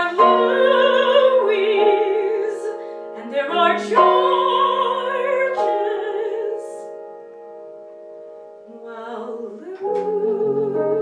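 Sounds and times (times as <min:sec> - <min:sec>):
soprano singing with vibrato: 0:00.0 - 0:07.0, 0:08.7 - 0:11.0
piano accompaniment: 0:00.0 - 0:11.0.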